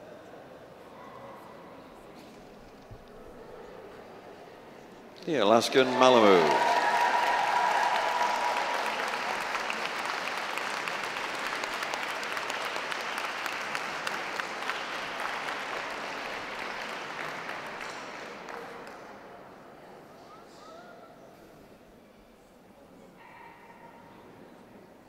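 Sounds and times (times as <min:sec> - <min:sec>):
audience applauding: 0:05.4 - 0:19.3.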